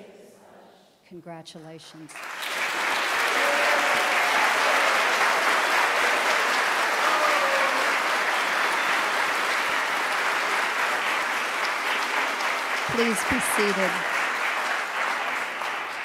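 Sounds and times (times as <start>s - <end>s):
large audience applauding: 2.1s - 16.0s.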